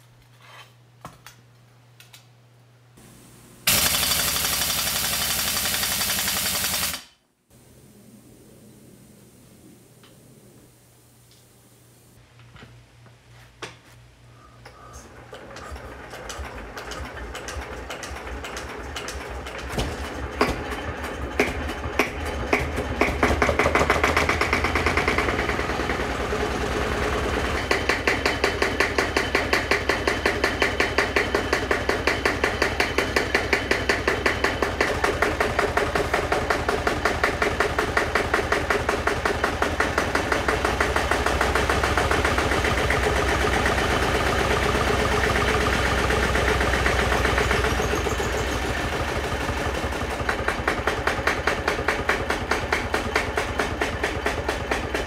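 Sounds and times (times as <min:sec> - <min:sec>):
diesel engine knocking: 0:15.6 - 0:55.0.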